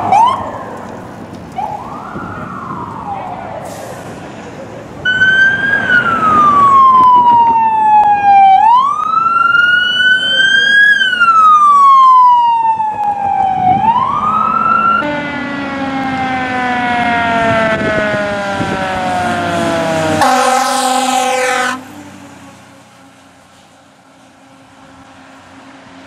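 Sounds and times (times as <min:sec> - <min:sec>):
electronic siren wailing: 0:00.0 - 0:03.6, 0:05.1 - 0:21.8
fire engine siren winding down: 0:00.0 - 0:04.2, 0:05.0 - 0:22.0.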